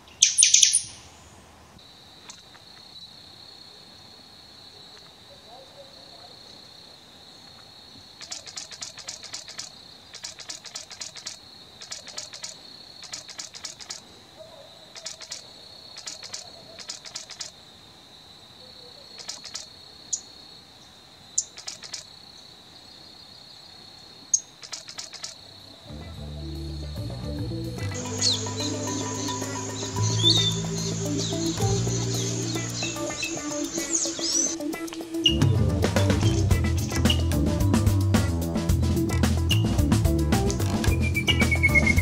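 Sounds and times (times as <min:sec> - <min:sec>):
rapid pulsing insect chirp: 0:00.0 - 0:42.0
insects high-pitched drone: 0:07.4 - 0:14.1, 0:15.0 - 0:17.6, 0:18.9 - 0:20.6, 0:21.4 - 0:23.0, 0:24.3 - 0:37.8, 0:40.9 - 0:42.0.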